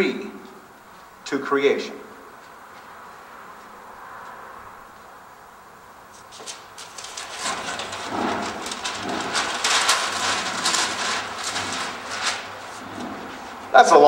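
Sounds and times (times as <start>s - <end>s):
paper rustling and crackling: 6.1s - 13.7s.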